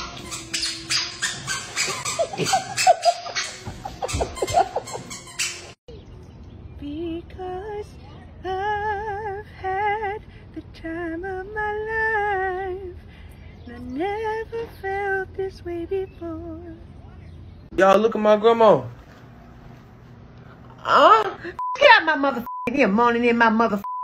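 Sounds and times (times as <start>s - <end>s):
woman singing with vibrato: 6.8s - 13.0s, 13.6s - 16.8s.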